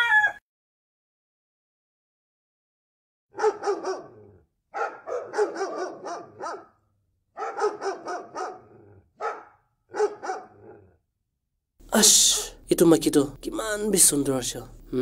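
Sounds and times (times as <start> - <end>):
dog barking: 3.3 - 11.0.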